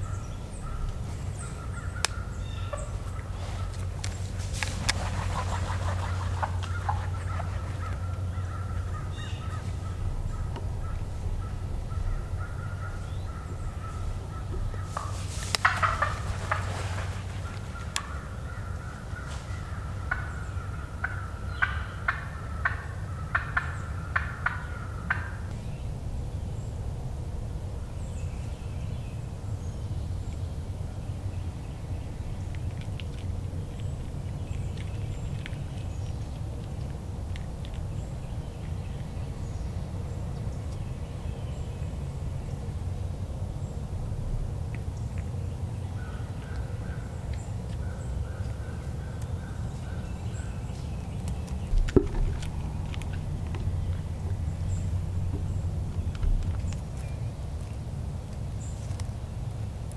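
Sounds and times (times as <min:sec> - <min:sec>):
turkey gobble: 0:00.6 - 0:03.8, 0:04.8 - 0:25.4.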